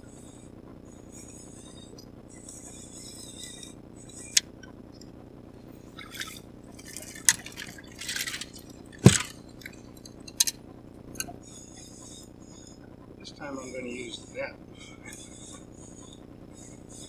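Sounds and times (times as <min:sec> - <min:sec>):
fish splashing in water: 0:05.9 - 0:10.1
fish knocking against boat: 0:09.0 - 0:09.7.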